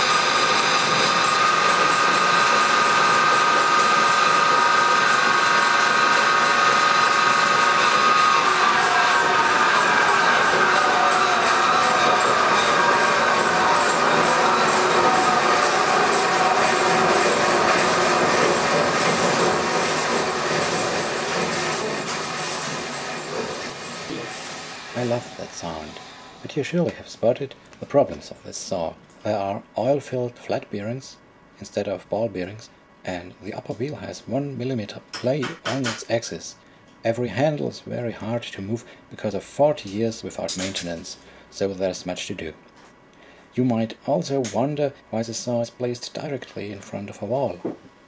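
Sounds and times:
bandsaw whining: 0.0 - 26.6.

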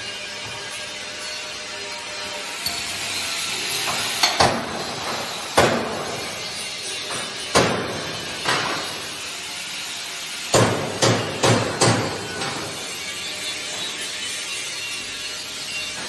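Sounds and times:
workshop noise: 0.0 - 16.0
hammer clanging on steel: 2.6 - 9.1, 10.5 - 12.9.

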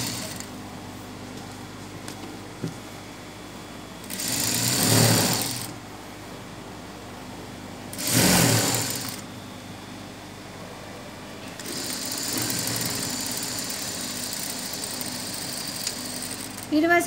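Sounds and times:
sewing machine stitching: 0.0 - 0.5, 4.1 - 5.7, 7.9 - 9.2, 11.6 - 16.7.

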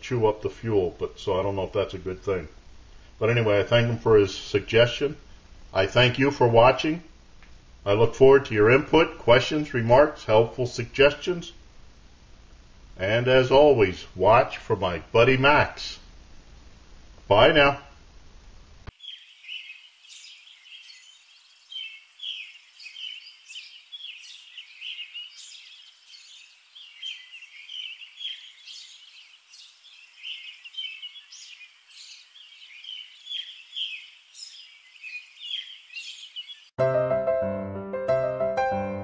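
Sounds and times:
songbirds chirping: 0.0 - 7.2, 18.9 - 36.8.

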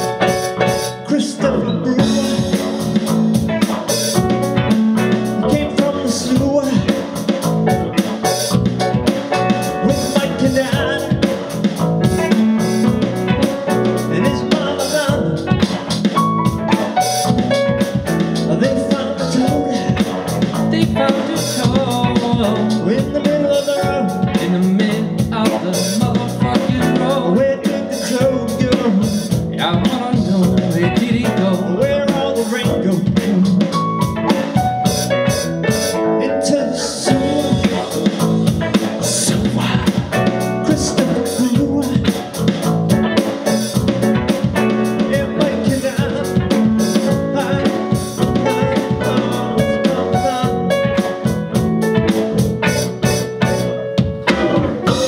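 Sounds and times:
electric bass: 0.0 - 55.0
electric guitar: 0.0 - 55.0
electronic drum kit: 0.0 - 55.0
keyboard: 0.0 - 55.0.

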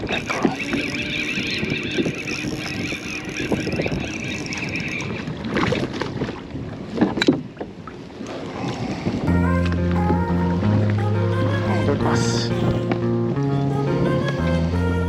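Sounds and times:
fishing reel whirring: 0.0 - 6.1.

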